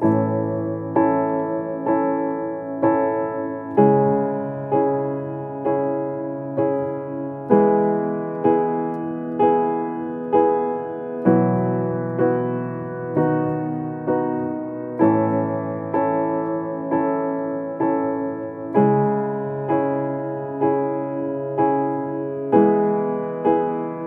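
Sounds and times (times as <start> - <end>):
slow piano music: 0.0 - 24.0.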